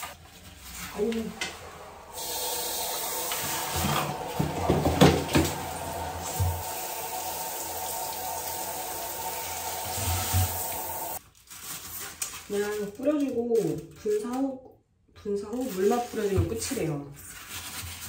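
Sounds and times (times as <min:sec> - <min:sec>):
shower spray on tiled floor: 0:00.7 - 0:11.2.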